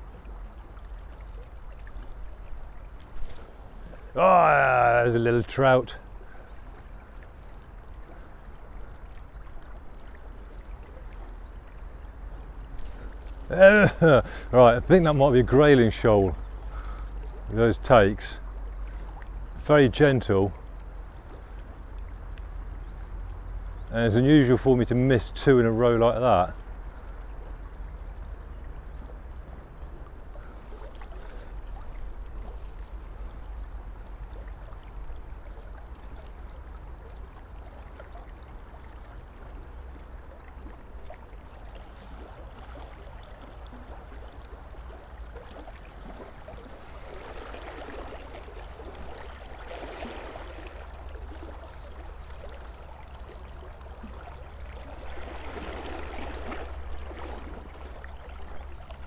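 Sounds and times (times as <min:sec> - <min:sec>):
low rumble of water: 0:00.0 - 0:59.0
river rushing over stones: 0:04.0 - 0:05.8.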